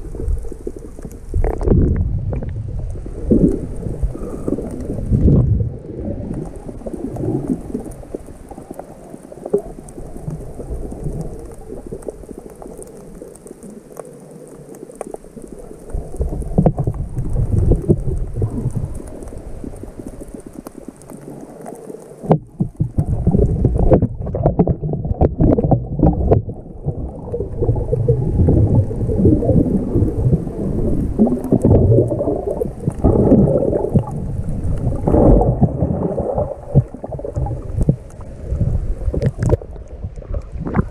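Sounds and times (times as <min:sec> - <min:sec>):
underwater sloshing and rumbling: 0:00.0 - 0:40.9
faint clicks: 0:06.3 - 0:30.2, 0:39.0 - 0:40.9.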